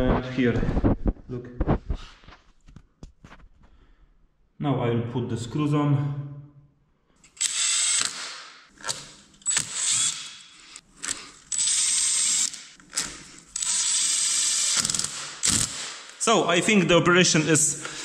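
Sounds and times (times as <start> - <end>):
drill driving screws: 7.2 - 16.2.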